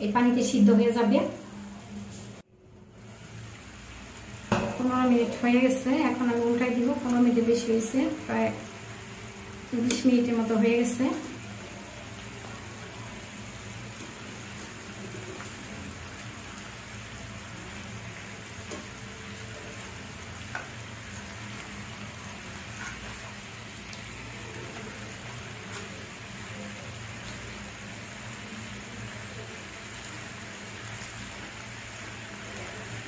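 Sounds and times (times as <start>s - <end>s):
chicken sizzling in a frying pan: 0.0s - 33.0s
metal tongs clicking on pan: 9.8s - 10.1s.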